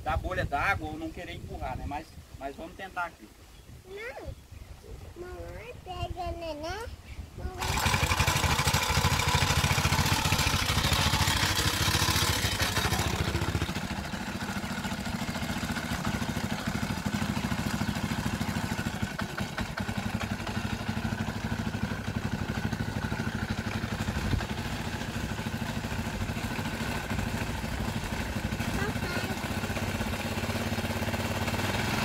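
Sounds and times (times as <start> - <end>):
outboard motor running: 7.5 - 32.0.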